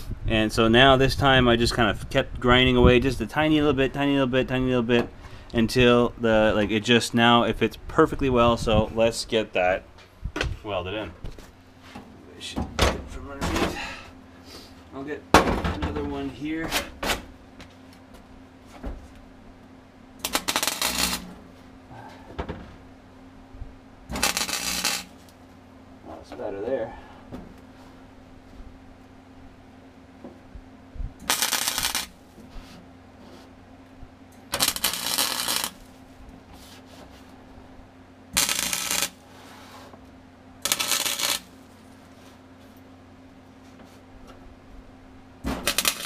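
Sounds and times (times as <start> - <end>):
welding arc crackle: 20.2 - 21.4, 24.1 - 25.4, 31.2 - 32.4, 34.5 - 36.0, 38.4 - 39.2, 40.6 - 41.8, 45.6 - 46.0.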